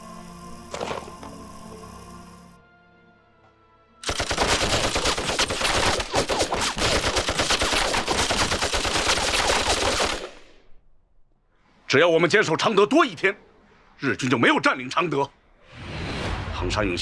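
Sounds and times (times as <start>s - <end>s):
machine-gun fire: 4.0s - 10.4s.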